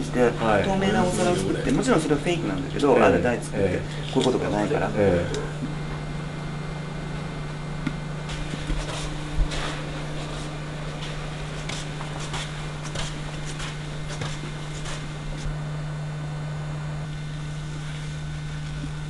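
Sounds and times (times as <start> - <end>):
low electrical hum: 0.0 - 19.0
footsteps in hallway: 8.3 - 15.5.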